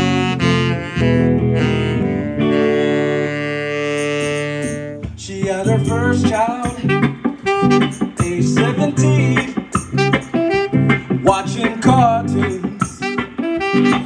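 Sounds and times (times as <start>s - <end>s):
bending melodic lead line: 0.0s - 14.0s
live band music: 0.0s - 14.0s.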